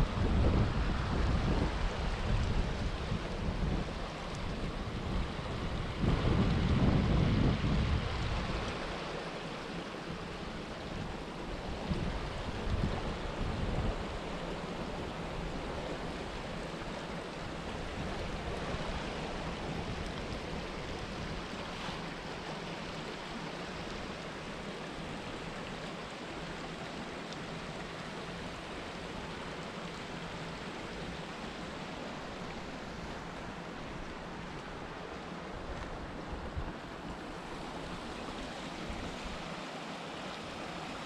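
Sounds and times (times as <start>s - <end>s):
wind buffeting microphone: 0.0s - 9.0s, 10.2s - 22.3s
stream rushing over stones: 0.0s - 41.0s.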